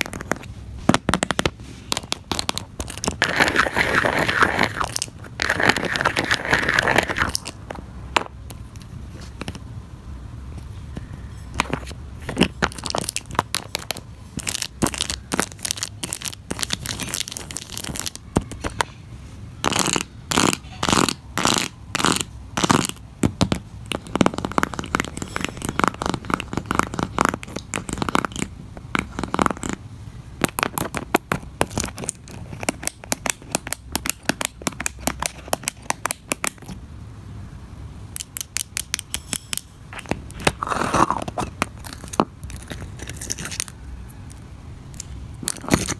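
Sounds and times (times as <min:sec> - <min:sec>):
fingernails tapping on plastic toys: 0:30.4 - 0:36.6, 0:38.2 - 0:40.6.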